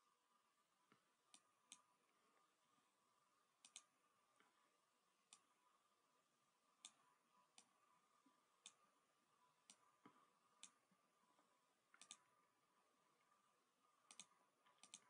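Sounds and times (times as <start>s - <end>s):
faint steady hum: 0.0s - 15.0s
computer mouse clicks: 0.9s - 1.9s, 3.6s - 4.6s, 5.3s - 5.5s, 6.8s - 7.8s, 8.6s - 8.9s, 9.6s - 10.8s, 11.9s - 12.3s, 14.1s - 15.0s.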